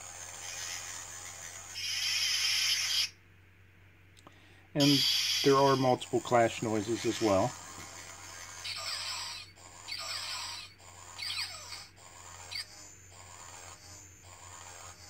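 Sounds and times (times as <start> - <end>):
lightsaber blade hum: 4.8 - 15.0.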